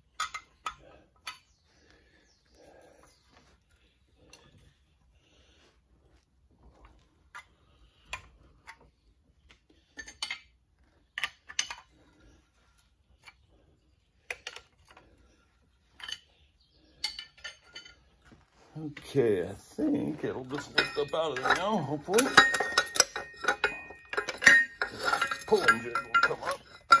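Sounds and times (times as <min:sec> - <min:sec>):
metallic clinks and ticks: 0:20.4 - 0:27.0.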